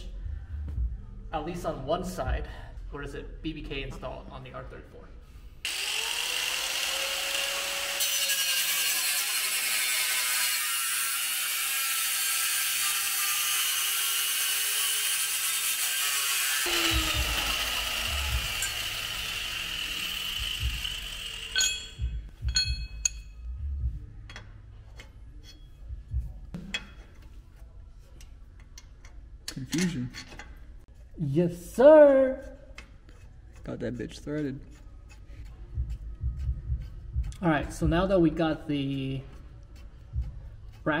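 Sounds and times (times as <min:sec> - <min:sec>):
angle grinder grinding metal: 0:05.7 - 0:23.2.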